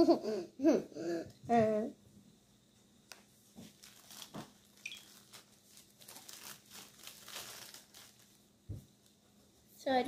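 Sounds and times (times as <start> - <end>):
rustling and crinkling: 3.1 - 9.6.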